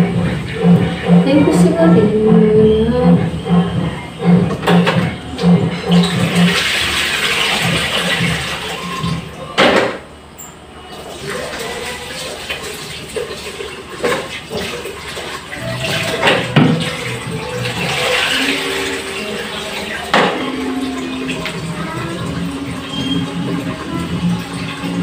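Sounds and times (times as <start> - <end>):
tap water running into sink: 5.9 - 9.2, 10.9 - 25.0
dishes knocking against sink: 16.1 - 16.9, 20.1 - 20.5.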